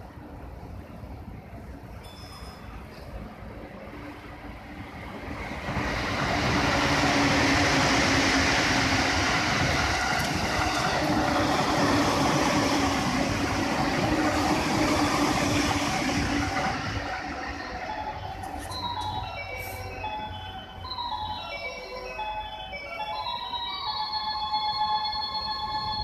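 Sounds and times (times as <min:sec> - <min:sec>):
train rumbling on track: 0:00.0 - 0:26.0.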